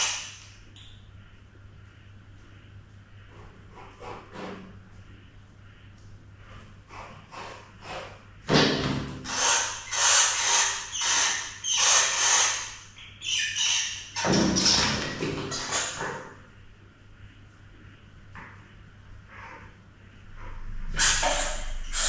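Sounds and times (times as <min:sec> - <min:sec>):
animal squealing: 0:09.2 - 0:16.0, 0:20.9 - 0:22.0.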